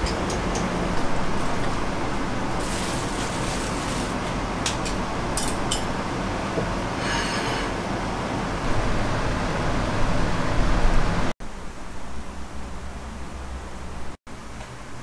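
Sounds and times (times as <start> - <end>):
brief scrape: 7.0 - 7.7.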